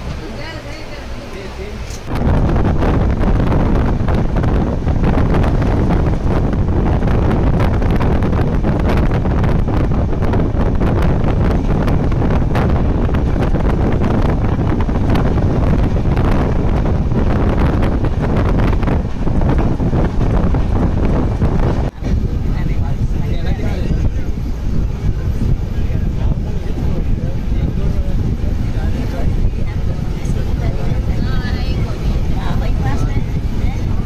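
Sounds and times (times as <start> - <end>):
train rumbling: 0.0 - 34.0
wind buffeting microphone: 0.0 - 34.0.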